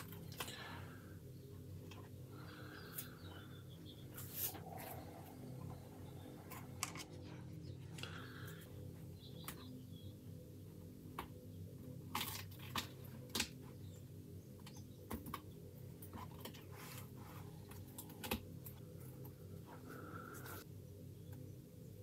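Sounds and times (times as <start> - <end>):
low steady hum: 0.0 - 22.0
masking tape rustling: 1.7 - 8.6.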